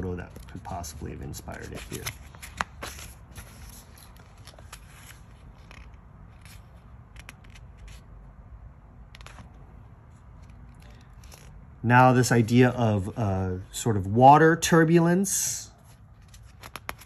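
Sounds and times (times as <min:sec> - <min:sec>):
fingers rustling book pages: 0:00.0 - 0:08.2, 0:09.1 - 0:11.6, 0:15.8 - 0:17.0
low room hum: 0:00.0 - 0:17.0.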